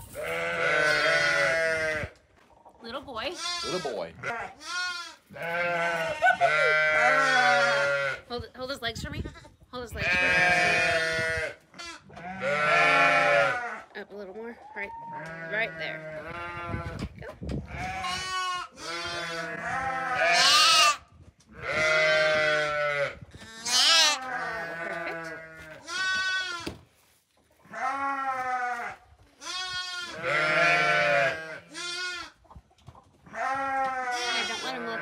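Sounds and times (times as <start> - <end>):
lambs bleating: 0.2 - 2.1, 3.3 - 8.2, 9.2 - 13.8, 17.7 - 21.0, 21.6 - 26.7, 27.7 - 32.4, 33.3 - 35.0.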